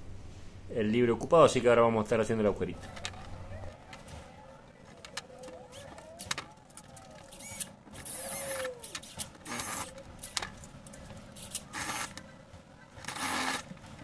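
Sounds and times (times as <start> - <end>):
drill bits clicking and clattering: 5.0 - 12.2
drill chuck whirring: 5.1 - 10.5, 11.4 - 12.2, 13.0 - 13.7.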